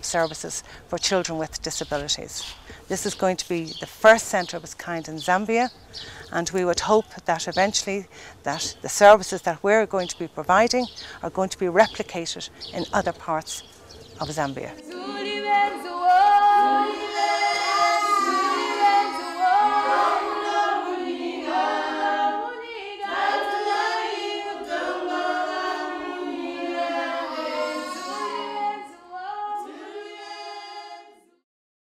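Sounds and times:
women singing unaccompanied: 14.2s - 31.4s.

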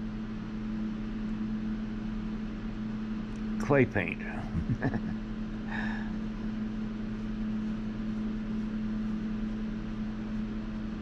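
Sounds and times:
mechanical hum: 0.0s - 11.0s.

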